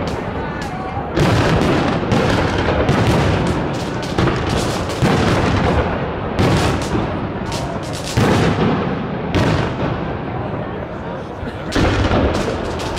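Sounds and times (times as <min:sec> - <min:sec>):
fireworks shells bursting: 0:00.0 - 0:08.6, 0:11.8 - 0:12.9
fireworks crackling and rumble: 0:00.0 - 0:12.9.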